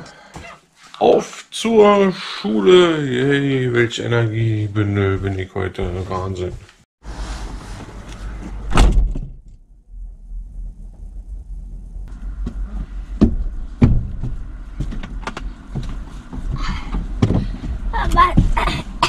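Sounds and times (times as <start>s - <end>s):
van door slamming shut: 8.7s - 9.4s
knocks and clunks inside van: 12.1s - 19.0s.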